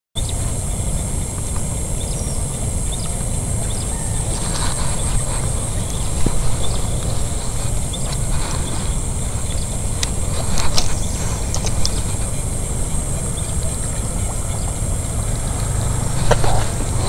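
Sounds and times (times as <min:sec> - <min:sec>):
grass rustling and ticking: 0:00.2 - 0:17.0
high-pitched insect drone: 0:00.2 - 0:17.0
wind rumble on microphone: 0:00.2 - 0:17.0.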